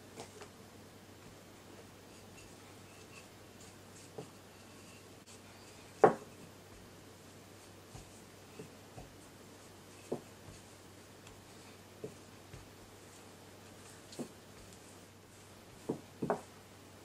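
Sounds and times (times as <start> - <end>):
rolling pin knocking on dough: 6.0 - 6.9, 15.7 - 16.5.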